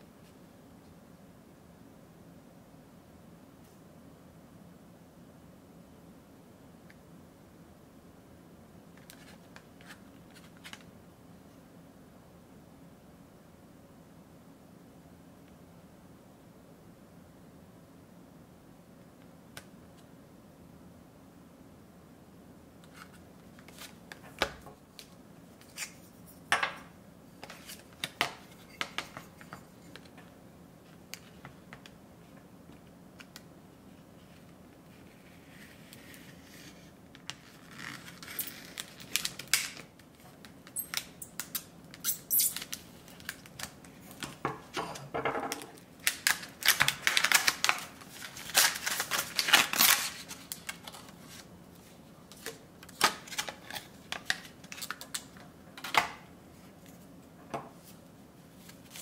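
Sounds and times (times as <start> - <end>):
knife cutting crackling plastic: 45.5 - 51.4.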